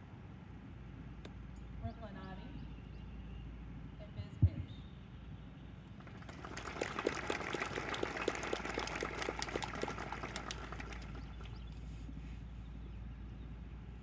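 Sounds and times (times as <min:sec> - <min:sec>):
low steady rumble: 0:00.0 - 0:14.0
audience applauding: 0:06.0 - 0:11.7.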